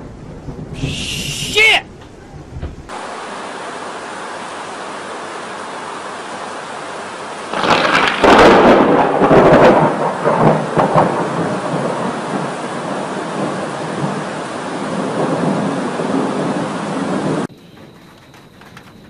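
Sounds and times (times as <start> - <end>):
loud thunderclap: 0.0 - 2.9, 7.5 - 17.5
rain hiss: 0.0 - 17.5.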